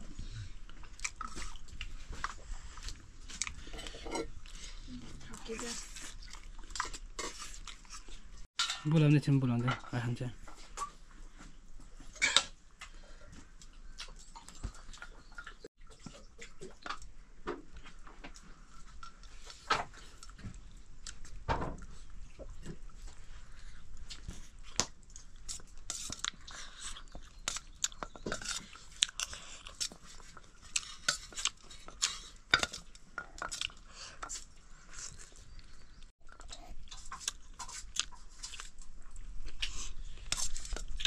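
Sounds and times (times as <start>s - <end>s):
person chewing noodles: 0.1s - 5.0s, 5.7s - 8.4s, 22.0s - 41.0s.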